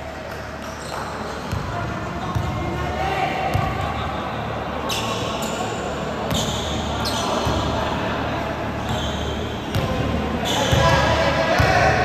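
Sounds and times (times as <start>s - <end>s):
shoes squeaking on floor: 8.8s - 9.6s.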